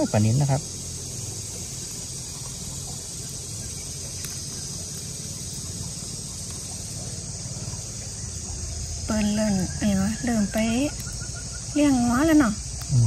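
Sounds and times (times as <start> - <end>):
insects chorus: 0.0 - 13.0.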